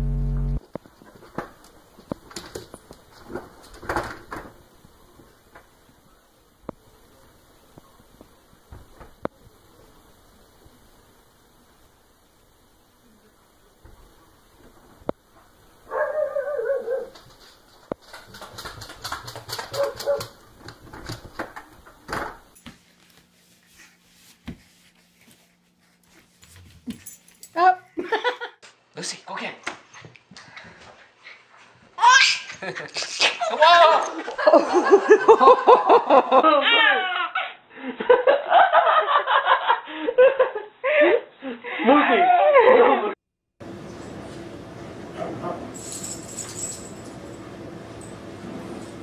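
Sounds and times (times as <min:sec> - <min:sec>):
low steady hum: 0:00.0 - 0:00.6, 0:43.6 - 0:49.0
baby laughing: 0:36.4 - 0:37.6.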